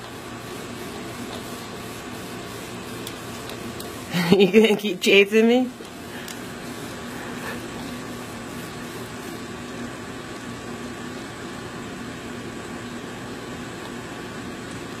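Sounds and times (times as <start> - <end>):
fan-like machine humming: 0.0 - 15.0.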